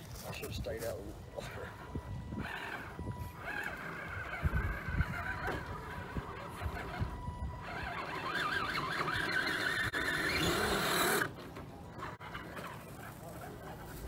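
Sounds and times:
electric motor whining: 1.1s - 11.4s.

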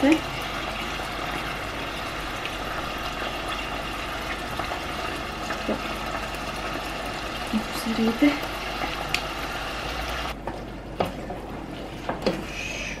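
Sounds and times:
meat sizzling in a saucepan: 0.0s - 10.4s.

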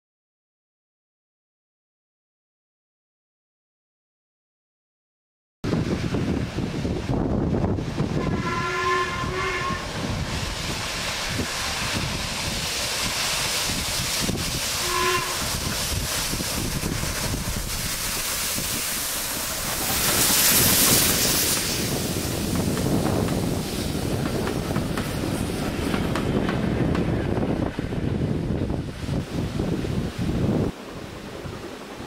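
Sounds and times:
train passing rush: 5.7s - 32.0s
steam locomotive whistle: 8.1s - 10.1s, 14.7s - 15.8s.

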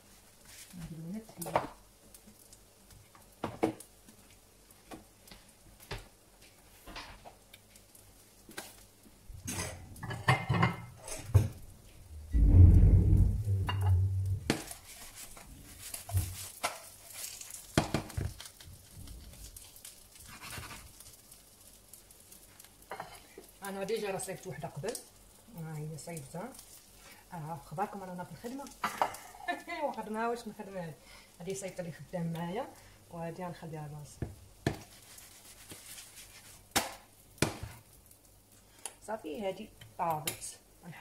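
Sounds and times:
clinks and knocks of cookware: 9.5s - 11.6s
dull rumble: 12.0s - 14.6s.

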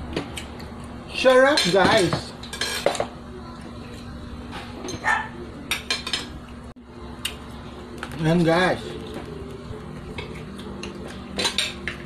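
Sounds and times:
soft eating noises: 0.0s - 12.0s
spoons clinking on plates: 1.3s - 3.1s, 5.7s - 6.4s, 11.0s - 12.0s.

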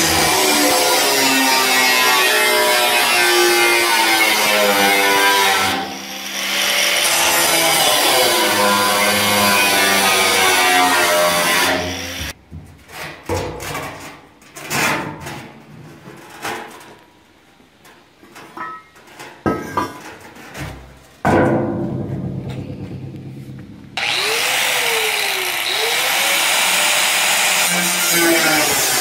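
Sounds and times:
angle grinder cutting metal: 0.0s - 12.4s, 24.0s - 29.0s
metal tub knocking on concrete: 18.6s - 20.0s, 21.2s - 24.0s.

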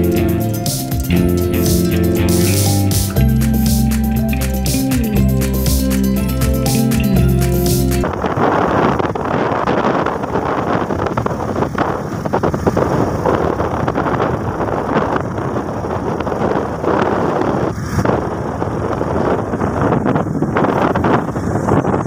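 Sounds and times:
wind buffeting microphone: 8.0s - 22.0s.

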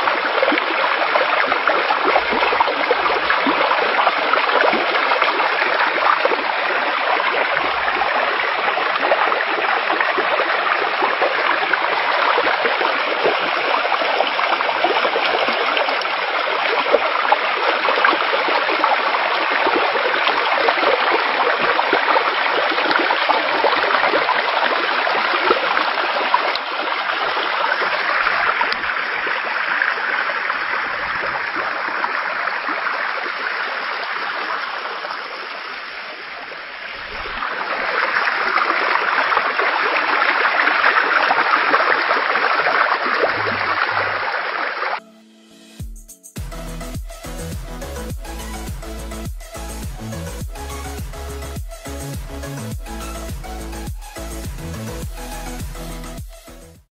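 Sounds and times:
floodwater rushing: 0.0s - 45.0s.

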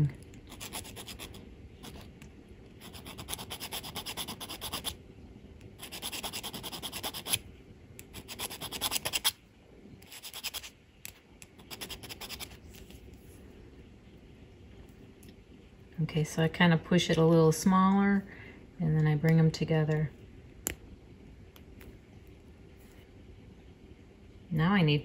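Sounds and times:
needle file rasping on metal: 0.5s - 2.1s, 5.8s - 7.4s.

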